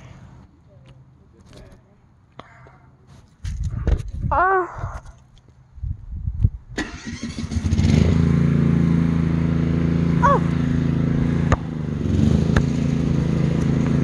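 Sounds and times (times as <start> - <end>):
engine running steadily: 6.8 - 14.0.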